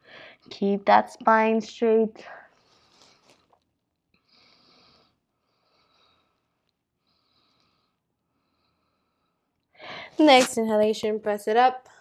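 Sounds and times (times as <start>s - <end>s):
soft breathing: 2.3s - 3.6s, 4.2s - 10.2s.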